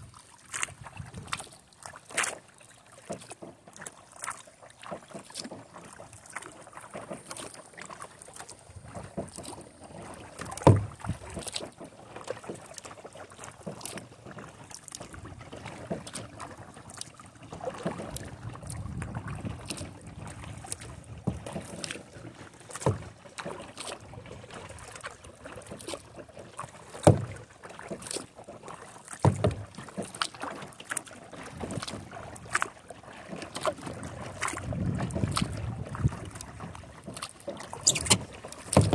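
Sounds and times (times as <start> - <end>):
paddle splashing in water: 0.0 - 38.9
wind on microphone: 0.8 - 1.4, 18.2 - 21.2, 34.3 - 36.5.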